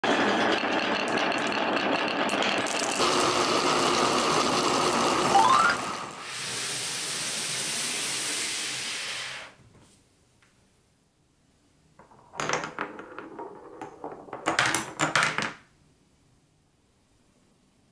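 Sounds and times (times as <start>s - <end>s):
marbles rattling down tracks: 0.1s - 6.2s, 12.0s - 15.6s
short rising tone: 5.1s - 6.2s
hissing rush: 5.4s - 9.6s.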